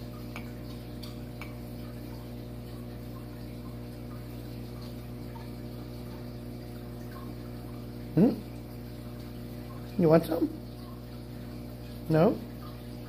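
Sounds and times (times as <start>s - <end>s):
low electric hum: 0.0s - 13.0s.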